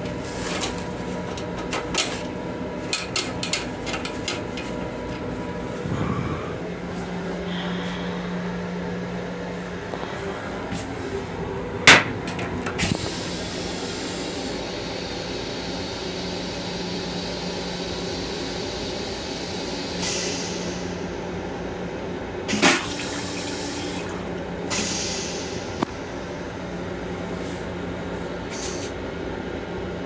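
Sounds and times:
steady low hum: 0:00.0 - 0:30.0
toilet flush clunk: 0:22.5 - 0:25.0.

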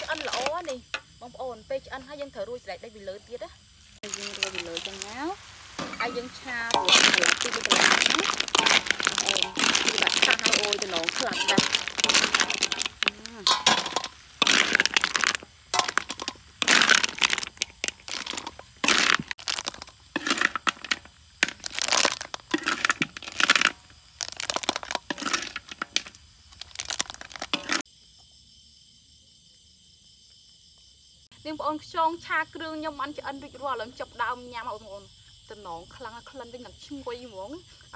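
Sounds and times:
snail shells clattering in metal wok: 0:00.0 - 0:01.1, 0:04.0 - 0:27.8
insects chirring: 0:00.0 - 0:37.9.

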